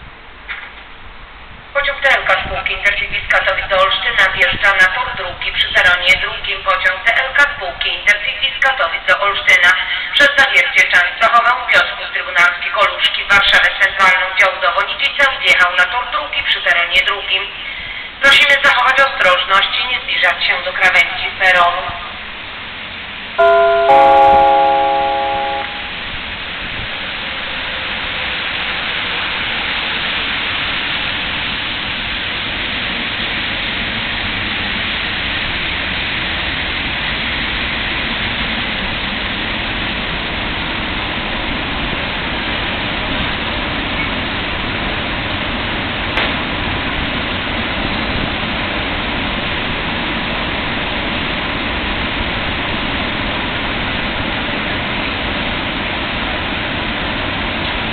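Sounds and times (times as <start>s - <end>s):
train wheels rumbling on rails: 0.0s - 57.9s
train horn chord: 23.4s - 26.1s.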